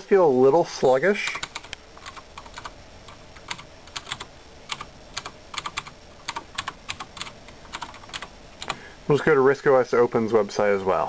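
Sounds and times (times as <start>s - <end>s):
typing on computer keyboard: 1.4s - 2.7s, 3.4s - 8.8s.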